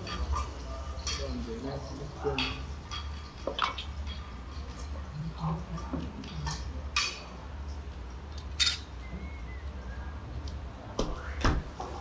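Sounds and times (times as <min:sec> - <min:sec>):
utensils and dishes clinking: 0:00.0 - 0:07.3, 0:08.3 - 0:09.0.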